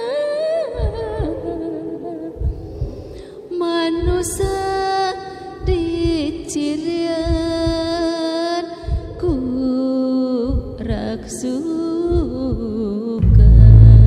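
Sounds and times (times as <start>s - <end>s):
low drum beats: 4.0s - 4.8s, 5.6s - 8.1s, 12.1s - 14.0s.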